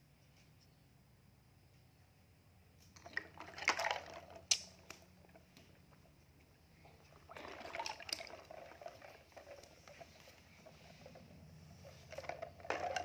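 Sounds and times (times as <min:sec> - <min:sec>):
plastic toys clicking: 0:03.0 - 0:05.7, 0:12.1 - 0:13.0
water splashing in plastic basin: 0:03.0 - 0:05.7, 0:07.0 - 0:10.2.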